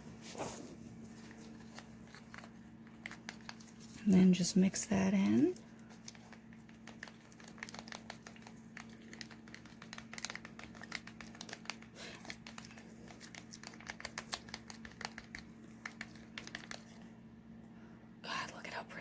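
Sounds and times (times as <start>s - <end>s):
gloves rustling: 0.0s - 4.1s
steady low hum: 0.0s - 19.0s.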